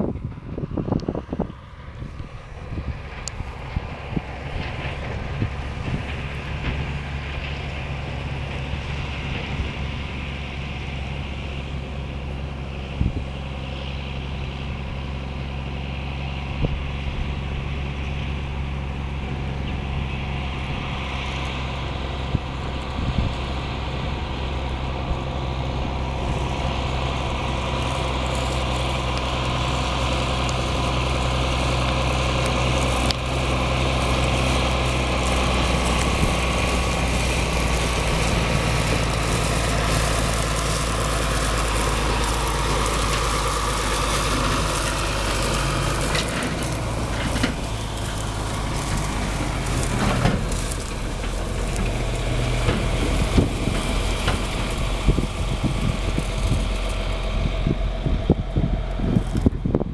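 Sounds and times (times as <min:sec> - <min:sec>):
tractor diesel engine running: 0:00.0 - 0:59.9.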